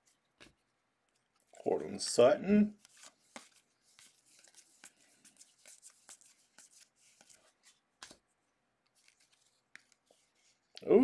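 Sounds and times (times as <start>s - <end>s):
cards flipping with soft swishes: 0.0s - 1.7s, 2.8s - 10.9s.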